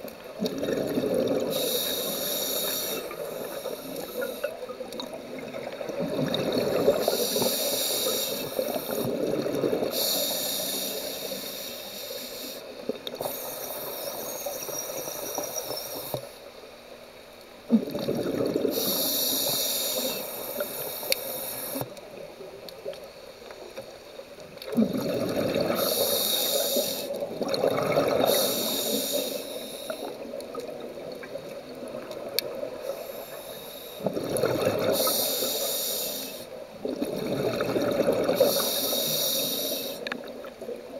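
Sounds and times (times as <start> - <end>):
exhaled bubbles underwater: 0.0 - 11.2, 17.7 - 21.0, 24.4 - 33.0, 34.0 - 35.5, 36.6 - 40.9
regulator inhale hiss: 1.4 - 4.6, 6.8 - 9.2, 9.8 - 16.6, 18.7 - 22.0, 25.6 - 27.3, 28.1 - 30.4, 32.5 - 36.6, 38.2 - 40.3.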